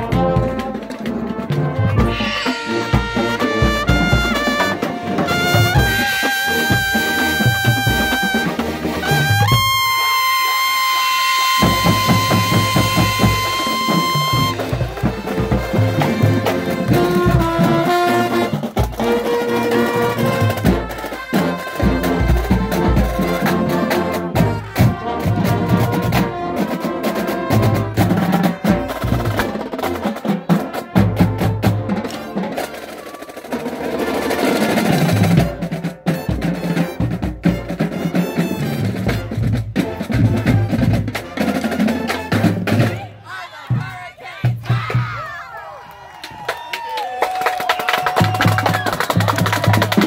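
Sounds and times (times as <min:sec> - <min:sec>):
brass and drums playing: 0:00.0 - 0:45.2, 0:48.2 - 0:50.0
high trumpet note: 0:01.5 - 0:14.7.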